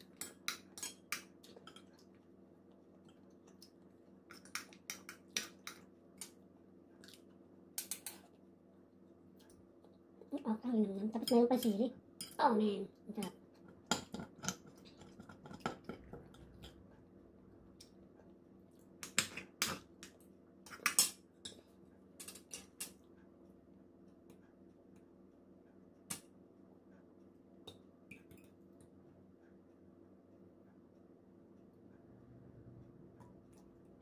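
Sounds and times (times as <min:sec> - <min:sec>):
faint hum: 0:14.7 - 0:34.0.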